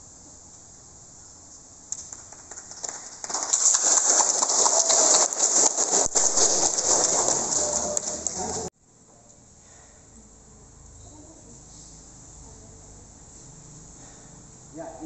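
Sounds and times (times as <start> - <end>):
people clapping: 1.9 - 8.7.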